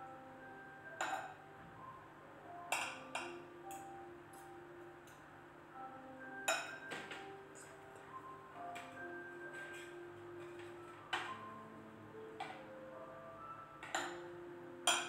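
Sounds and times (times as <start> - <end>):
faint background music: 0.0 - 15.0
metal spoon clinking on saucepan: 6.5 - 7.0.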